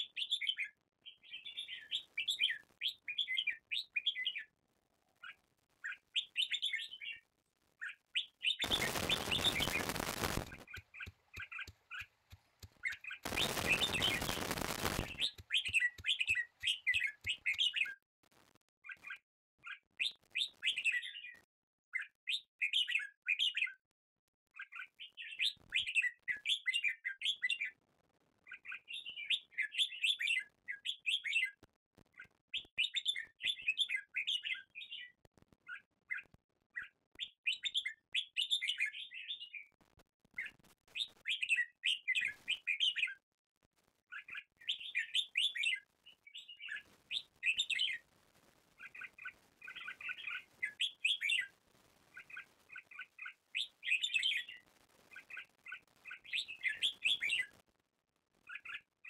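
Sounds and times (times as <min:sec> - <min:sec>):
birds chirping: 0:07.8 - 0:18.0.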